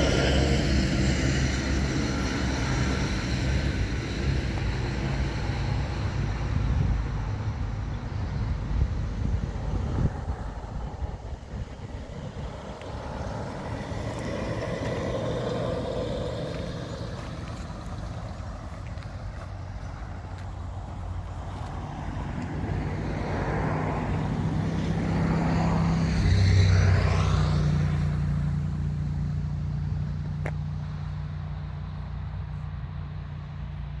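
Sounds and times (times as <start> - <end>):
car engine idling: 0.0 - 22.8.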